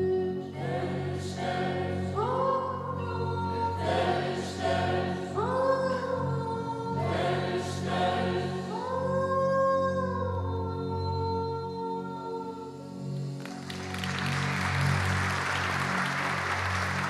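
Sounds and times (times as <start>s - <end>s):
mixed choir singing: 0.0s - 9.5s.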